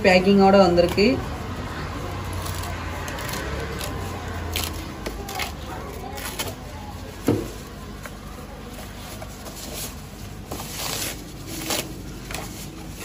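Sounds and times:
packing sheet rustling and crinkling: 0:02.5 - 0:13.0.

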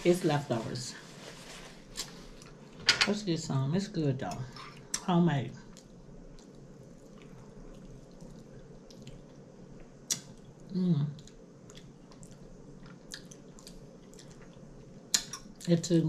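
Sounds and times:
wet chewing noises: 0:04.5 - 0:15.8
person humming mm: 0:10.7 - 0:11.2.

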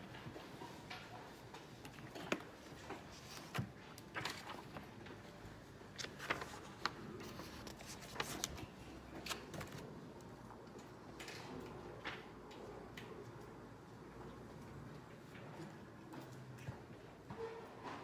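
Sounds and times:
paper page turning: 0:03.1 - 0:04.9, 0:05.9 - 0:09.9.

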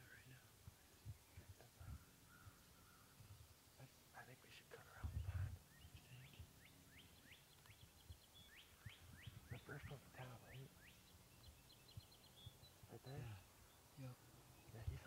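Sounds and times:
high ticking bird notes: 0:00.0 - 0:15.0
songbird whistling: 0:05.7 - 0:09.8.

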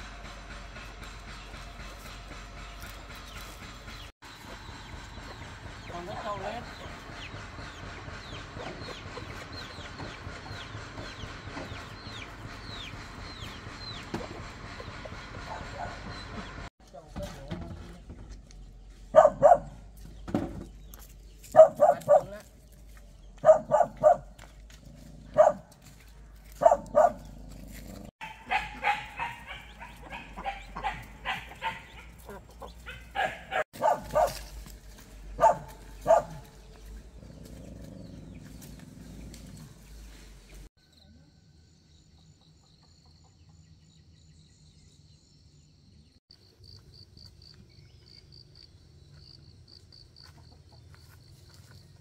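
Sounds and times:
dog barking: 0:19.1 - 0:19.8, 0:21.5 - 0:22.5, 0:23.4 - 0:24.4, 0:25.3 - 0:25.7, 0:26.5 - 0:27.3, 0:28.2 - 0:32.2, 0:32.8 - 0:34.6, 0:35.4 - 0:36.6.

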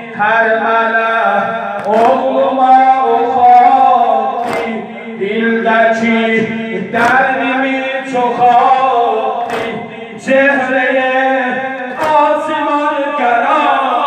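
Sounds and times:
man singing into a microphone: 0:00.0 - 0:14.0
group of men chanting: 0:01.3 - 0:14.0
chest-beating slaps: 0:01.8 - 0:02.2, 0:04.4 - 0:04.8, 0:09.4 - 0:09.9, 0:11.9 - 0:12.3.

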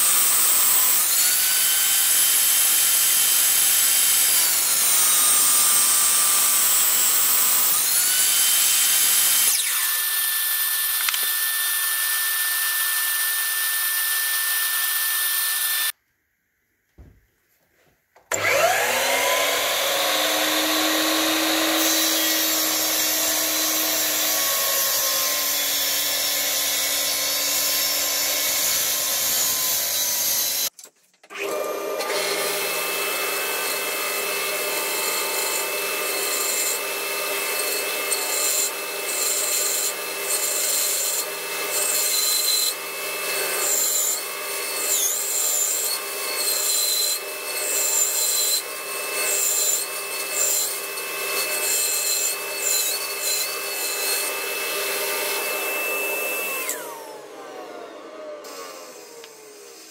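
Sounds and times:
band saw cutting wood: 0:00.0 - 0:16.0, 0:18.3 - 0:30.7, 0:31.3 - 0:59.9
mitre saw motor whine: 0:04.5 - 0:15.9, 0:18.3 - 0:30.7, 0:50.5 - 0:59.9.

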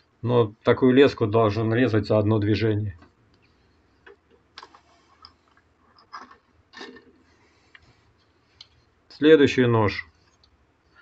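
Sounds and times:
soft handling clicks and rustles: 0:03.0 - 0:09.3.

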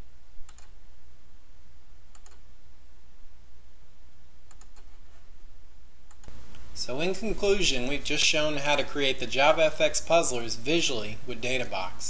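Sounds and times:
low hum and hiss: 0:00.0 - 0:12.0
computer mouse clicks: 0:00.4 - 0:00.8, 0:02.1 - 0:02.5, 0:04.5 - 0:05.2, 0:06.1 - 0:06.7.

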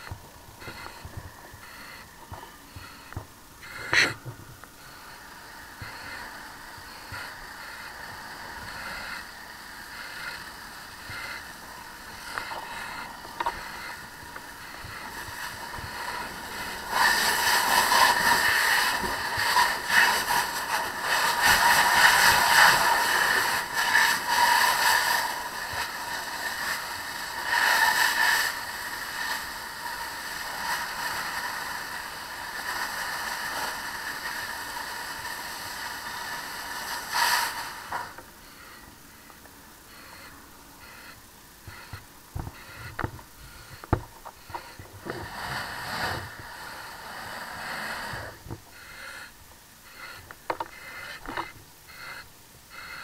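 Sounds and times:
low steady noise: 0:00.0 - 0:53.0
hose spray and steam hissing: 0:05.0 - 0:38.8, 0:44.6 - 0:49.3.

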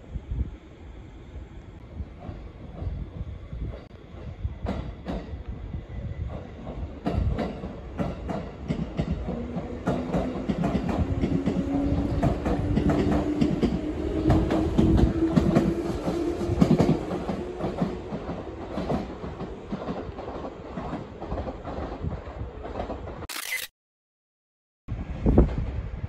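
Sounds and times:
train wheels clacking over rail joints: 0:06.3 - 0:23.2.

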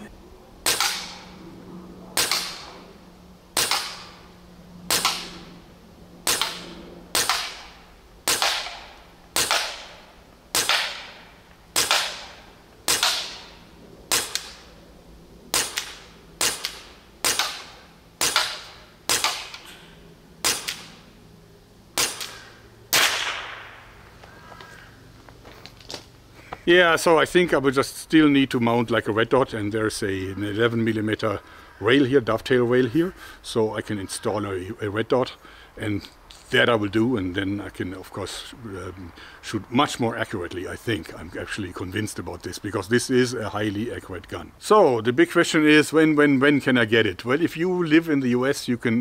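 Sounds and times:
air pistol shots: 0:00.6 - 0:01.3, 0:02.2 - 0:02.8, 0:03.5 - 0:04.2, 0:04.9 - 0:05.5, 0:06.2 - 0:14.7, 0:15.5 - 0:19.7, 0:20.4 - 0:21.1, 0:22.0 - 0:24.0.

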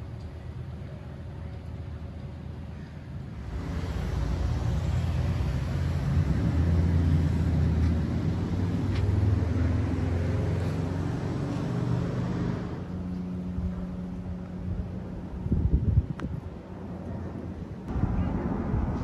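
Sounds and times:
vehicle driving past: 0:03.5 - 0:13.6.

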